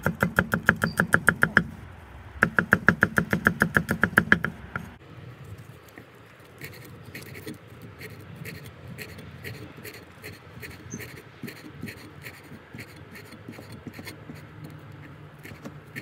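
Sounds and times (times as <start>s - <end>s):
cleaver chopping on wooden board: 0.0s - 1.7s, 2.4s - 4.9s.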